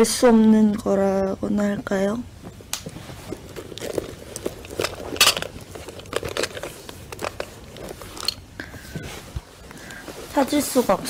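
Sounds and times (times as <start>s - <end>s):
objects clicking and rustling: 2.8s - 9.5s.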